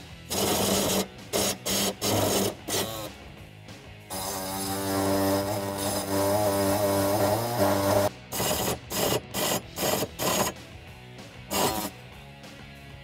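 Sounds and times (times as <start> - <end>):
handheld saw cutting plastic: 0.3 - 3.1, 4.1 - 10.6, 11.5 - 12.0
short sharp rasping: 11.5 - 12.0.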